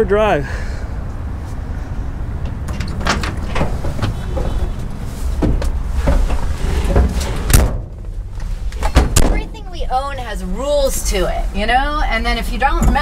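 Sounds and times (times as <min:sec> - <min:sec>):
steady low rumble: 0:00.0 - 0:12.8
truck door knocks and clunks: 0:02.4 - 0:04.8, 0:05.4 - 0:08.2, 0:08.8 - 0:09.6.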